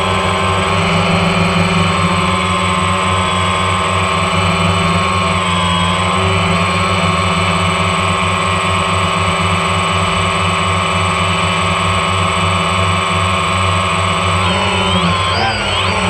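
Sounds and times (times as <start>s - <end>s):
drone propellers whining: 0.0s - 16.0s.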